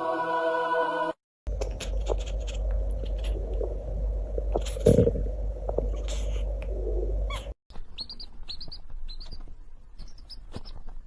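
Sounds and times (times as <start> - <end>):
low hum: 1.5 - 10.0
chick peeping: 7.3 - 9.4.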